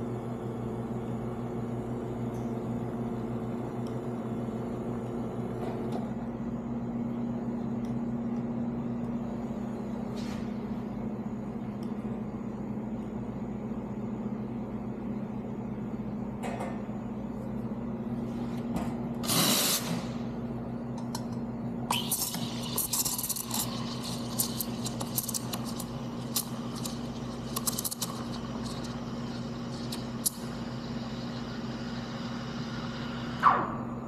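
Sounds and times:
espresso machine humming: 0.0 - 18.2, 19.0 - 33.4
steam wand hissing into milk: 21.9 - 33.4.

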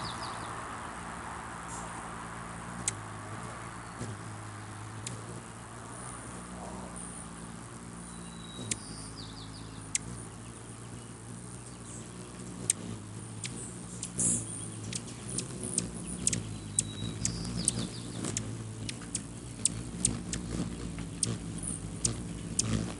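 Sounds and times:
hummingbird wings humming: 0.0 - 22.9
bird chip calls and chatter: 2.8 - 5.5, 6.3 - 22.9.

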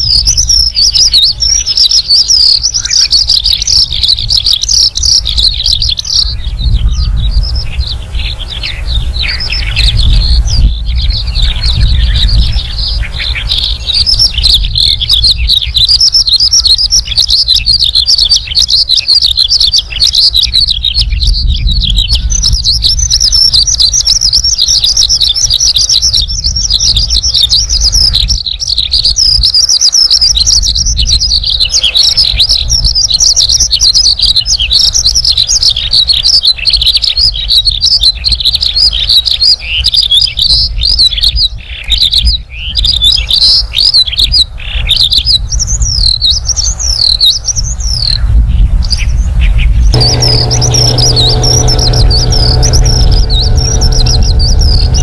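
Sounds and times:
lark singing: 0.0 - 41.6
low rumble: 50.0 - 55.0.

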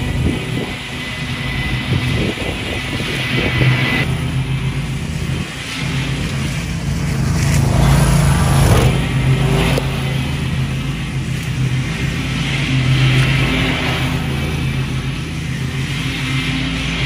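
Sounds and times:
riding mower engine cutting grass: 0.0 - 17.0.

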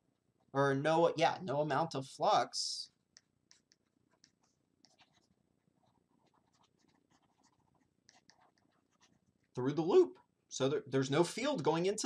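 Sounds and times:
stylus tapping and scratching: 3.1 - 9.6.

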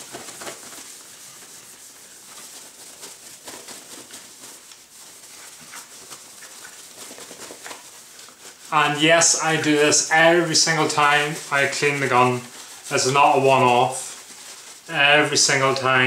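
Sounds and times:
paper towel rubbing wood: 0.0 - 16.0.

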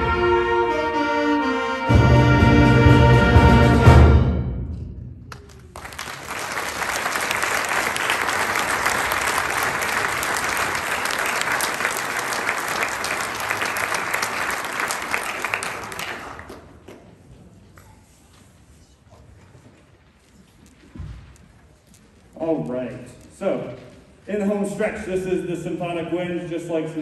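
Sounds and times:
audience applauding: 5.3 - 16.9.

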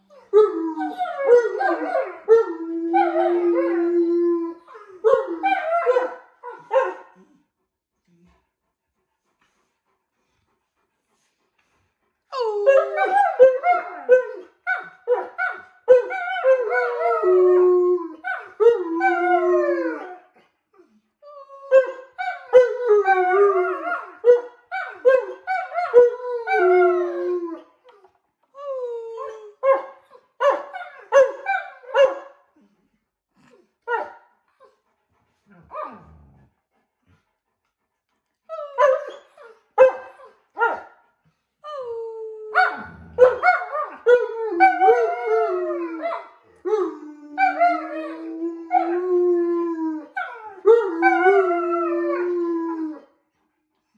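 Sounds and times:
dogs howling: 0.1 - 7.1, 12.3 - 20.3, 21.5 - 27.7, 41.8 - 53.0.

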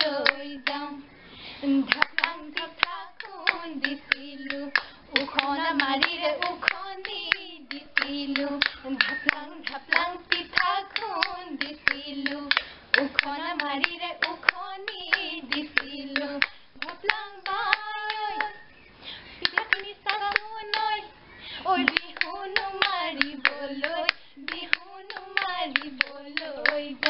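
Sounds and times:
hand claps: 0.0 - 0.8, 1.9 - 18.6, 19.4 - 21.0, 21.8 - 27.0
women singing folk song: 0.0 - 27.0
bamboo clapper clacking: 1.9 - 18.6, 19.4 - 21.0, 21.8 - 27.0.

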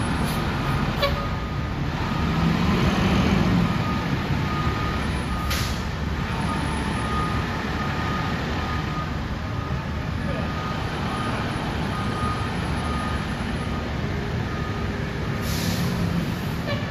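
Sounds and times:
fire engine running: 0.0 - 16.9
reversing beeper: 3.7 - 15.7.

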